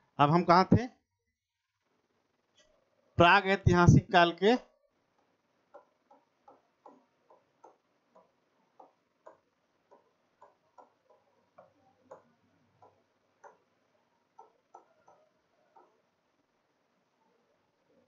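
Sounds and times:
stylus tapping on glass screen: 5.2 - 13.7, 14.3 - 16.0.

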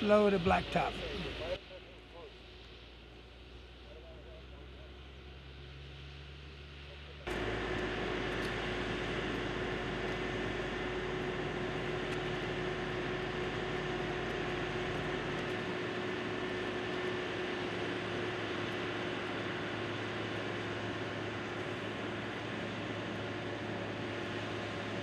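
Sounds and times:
heavy diesel machinery running: 0.0 - 25.0
asphalt pouring from truck: 7.3 - 25.0.

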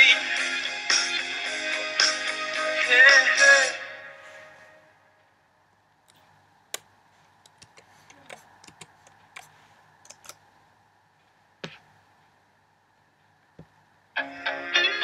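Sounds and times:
hair braiding clicks and crackles: 6.7 - 10.5.

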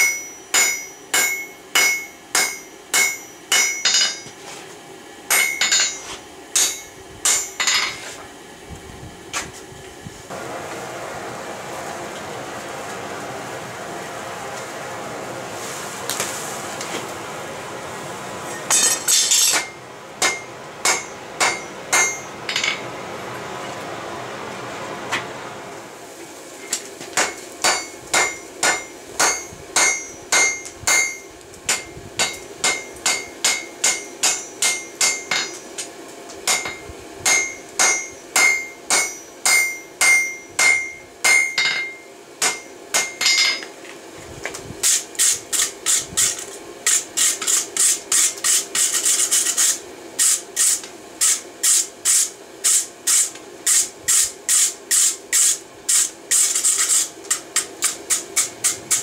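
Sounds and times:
hammer striking metal on anvil: 0.0 - 4.4, 5.3 - 8.0, 18.7 - 22.9, 27.2 - 35.8, 36.4 - 43.7.

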